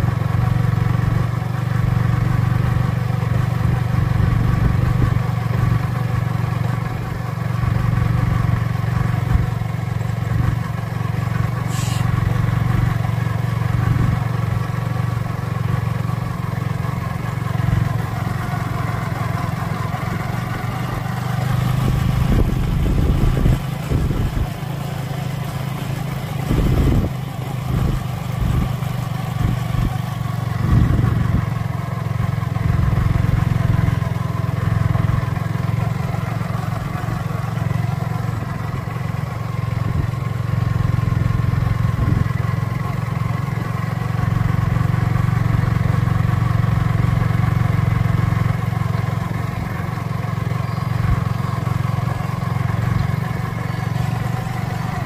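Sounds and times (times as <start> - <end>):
motorbike engine running: 0.0 - 55.0
low rumbles: 17.2 - 31.6.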